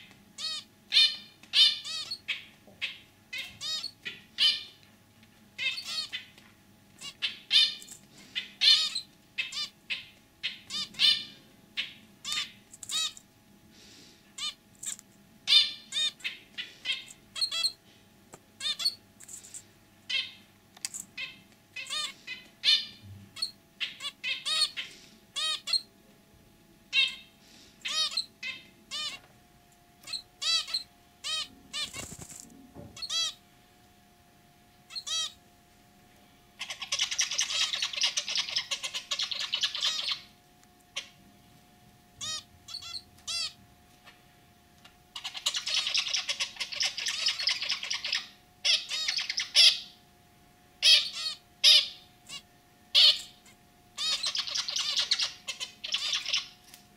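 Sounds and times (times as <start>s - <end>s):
finch calling: 0.4s - 4.8s, 5.6s - 6.3s, 7.0s - 13.2s, 14.4s - 14.6s, 15.5s - 17.8s, 18.6s - 19.0s, 20.1s - 20.4s, 21.2s - 25.9s, 26.9s - 29.2s, 30.0s - 32.3s, 33.0s - 33.4s, 34.9s - 35.4s, 36.6s - 40.3s, 42.2s - 44.2s, 45.2s - 50.0s, 50.8s - 56.6s.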